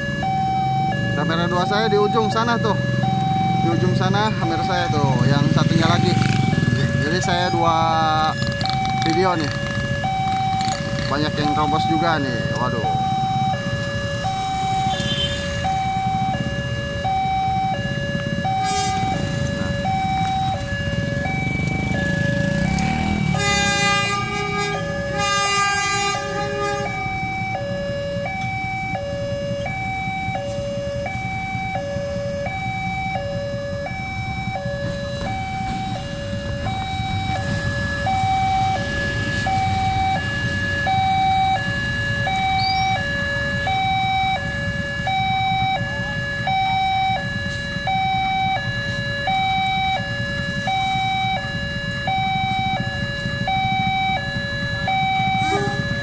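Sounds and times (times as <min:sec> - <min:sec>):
two-tone level crossing alarm: 0:00.0 - 0:56.0
locomotive air horn: 0:14.8 - 0:15.6, 0:18.5 - 0:19.4, 0:23.3 - 0:27.2, 0:55.2 - 0:56.0
locomotive rumble passing: 0:33.9 - 0:41.1.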